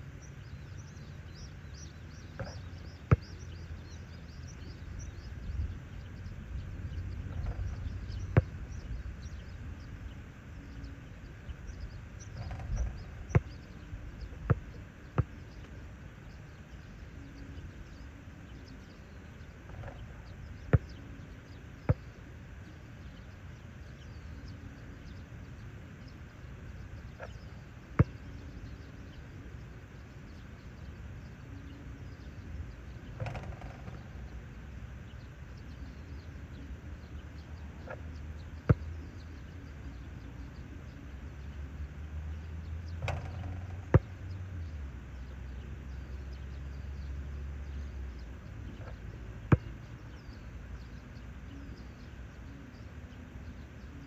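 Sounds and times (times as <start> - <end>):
low background rumble: 0.0 - 54.0
basketball bouncing on court: 2.3 - 3.6, 8.3 - 8.8, 12.4 - 13.7, 14.5 - 15.8, 28.0 - 28.2, 33.2 - 33.9, 43.0 - 44.1, 49.5 - 49.7
ball clanging on hoop: 33.2 - 34.0, 43.0 - 44.1.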